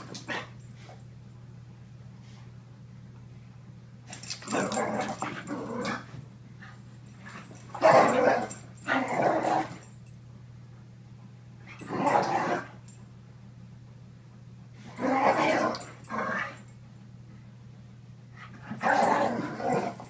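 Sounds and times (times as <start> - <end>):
dogs growling: 4.4 - 6.1, 7.8 - 9.9, 11.8 - 12.8, 14.9 - 16.6, 18.6 - 20.0.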